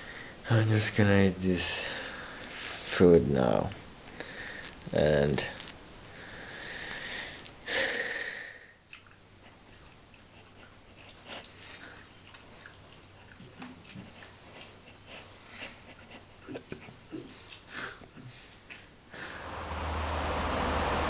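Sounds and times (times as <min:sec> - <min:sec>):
orange being peeled: 0:02.2 - 0:03.0, 0:04.2 - 0:07.7
quiet chewing: 0:02.3 - 0:02.9, 0:04.1 - 0:07.7, 0:08.9 - 0:19.0.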